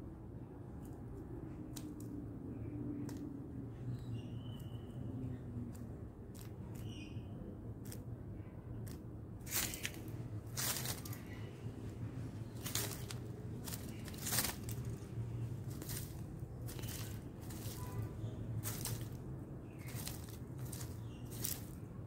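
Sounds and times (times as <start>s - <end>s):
dry leaves rustling and crackling: 8.9s - 22.0s.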